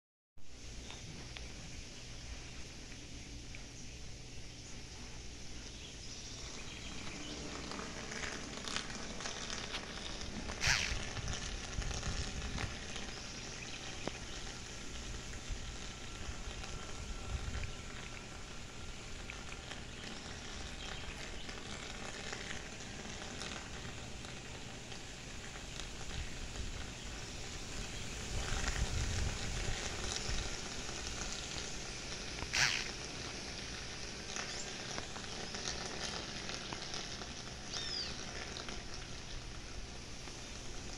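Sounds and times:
wind hiss: 0.5s - 40.9s
wind buffeting microphone: 6.3s - 21.6s, 25.9s - 32.7s.

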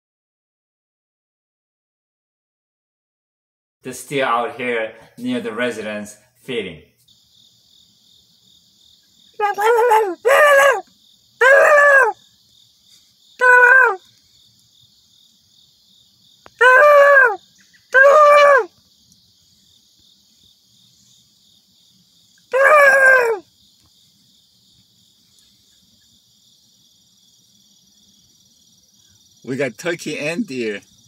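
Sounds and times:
crickets chirring: 3.8s - 31.0s
drawn-out animal calls: 9.4s - 12.2s, 13.4s - 14.1s, 22.5s - 23.4s.

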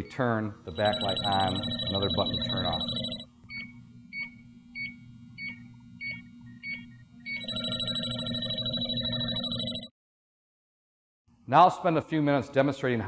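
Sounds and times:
short high beeps: 0.8s - 3.2s
dense ringing tone: 0.8s - 3.3s, 7.3s - 9.9s.

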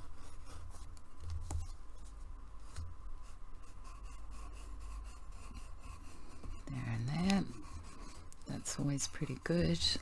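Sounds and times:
low steady hum: 0.0s - 10.0s
pencil scratching on paper: 3.2s - 10.0s.

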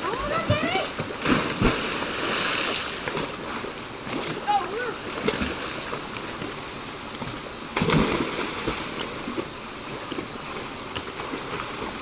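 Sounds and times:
river rushing: 0.0s - 12.0s
loud splash into water: 7.8s - 8.8s.

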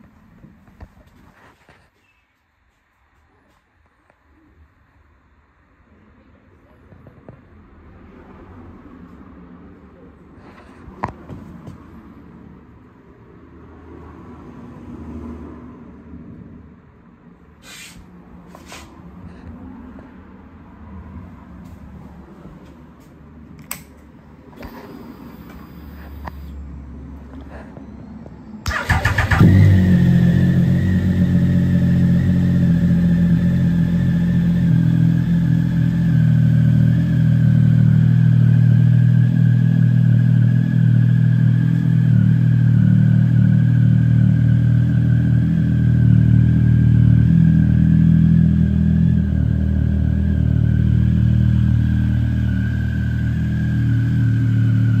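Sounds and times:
motorcycle engine starting and idling: 28.6s - 55.0s.

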